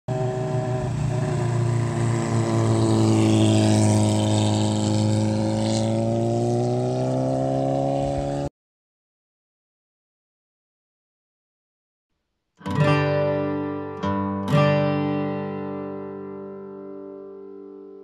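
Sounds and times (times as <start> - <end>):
motorcycle engine running: 0.1 - 8.5.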